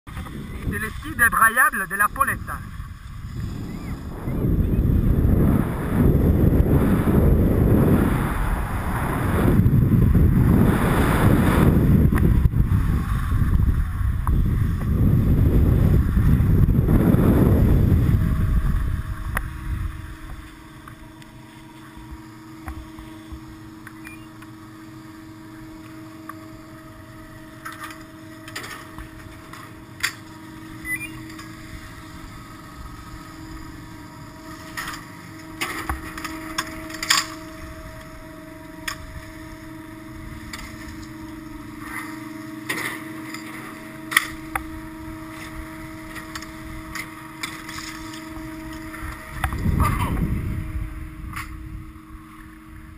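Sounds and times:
rush of wind: 0.1s - 24.2s, 30.3s - 52.9s
lift machinery humming: 0.1s - 52.9s.

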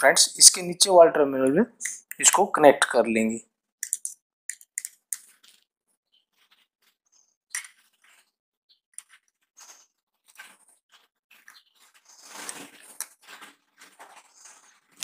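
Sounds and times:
wire clicking and scraping: 3.8s - 5.7s, 8.9s - 15.0s.

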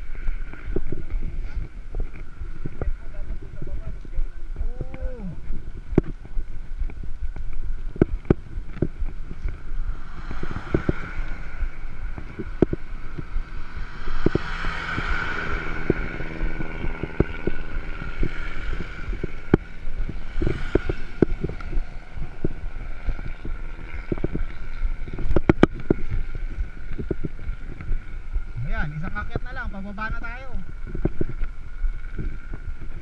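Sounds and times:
motorcycle engine droning: 0.0s - 33.0s
wind buffeting microphone: 0.0s - 33.0s.

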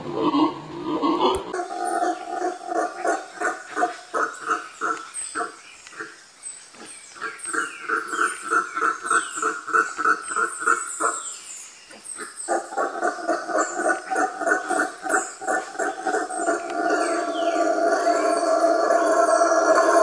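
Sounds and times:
howler monkey howling: 0.0s - 5.0s, 12.5s - 20.0s.

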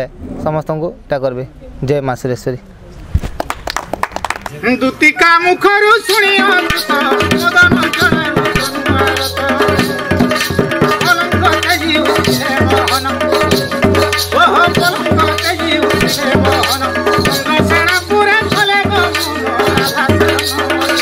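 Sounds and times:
men singing into microphones: 5.2s - 21.0s
hand drum rhythm: 6.0s - 21.0s.

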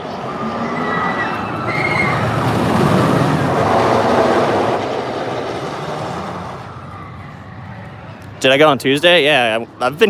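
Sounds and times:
roller coaster rumbling on track: 0.0s - 10.0s.

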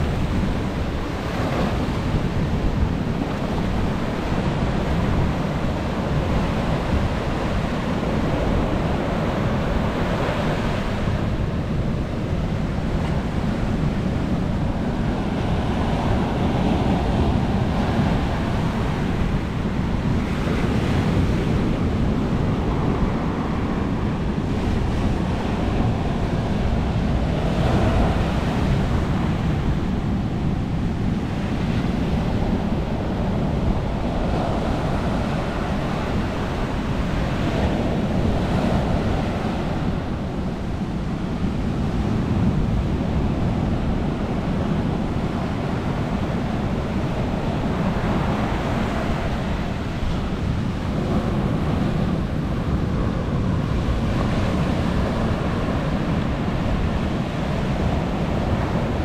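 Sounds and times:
ocean waves breaking on beach: 0.0s - 59.0s.

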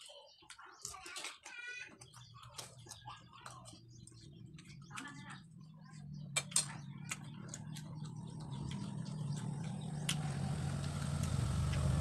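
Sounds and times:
vehicle engine running: 5.6s - 12.0s.

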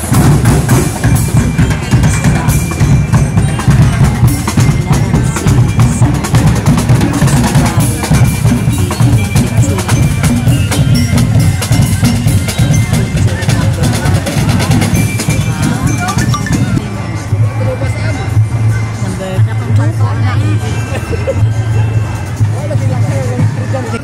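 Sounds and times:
drum ensemble playing: 0.0s - 18.8s.

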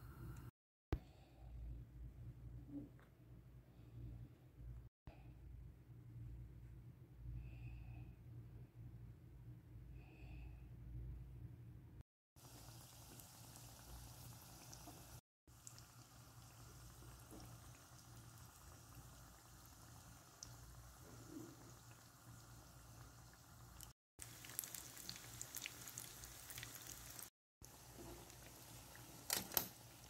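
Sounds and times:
dough sizzling in hot oil: 12.4s - 30.0s
oil crackling and popping: 23.8s - 30.0s.

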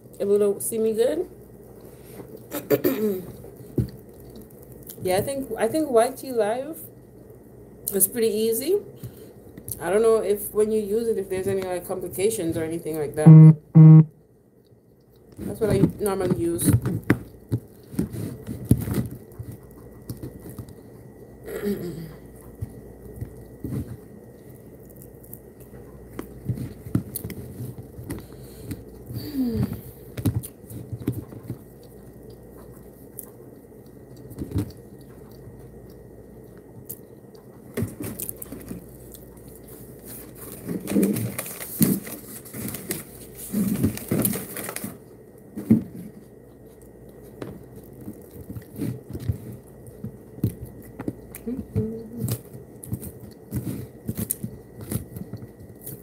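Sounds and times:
person chewing: 1.4s - 5.0s, 14.6s - 15.4s, 17.0s - 43.9s, 46.1s - 56.0s.

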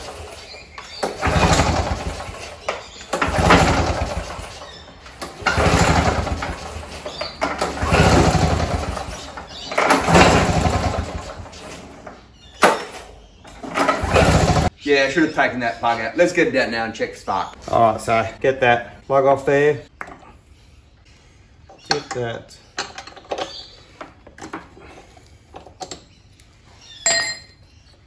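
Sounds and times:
recoil starter cord pulls: 0.0s - 12.8s, 13.5s - 14.7s
lawnmower engine cranking: 0.0s - 14.7s.

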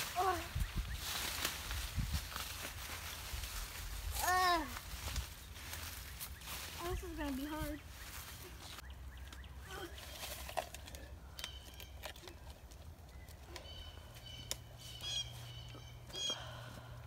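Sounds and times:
shoes and hands on tree bark: 0.0s - 16.3s
bird chirping: 7.8s - 10.4s, 11.3s - 16.6s.

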